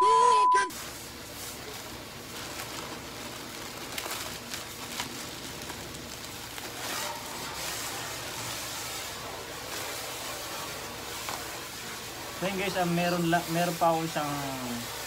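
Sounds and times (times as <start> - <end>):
plastic pouch crinkling and tearing: 0.7 - 8.5.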